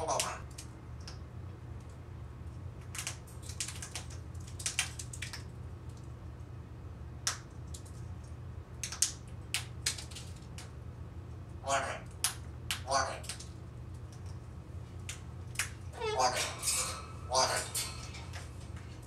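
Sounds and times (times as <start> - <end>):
low steady hum: 0.0 - 19.0
parrot making sharp clicks: 12.0 - 13.5.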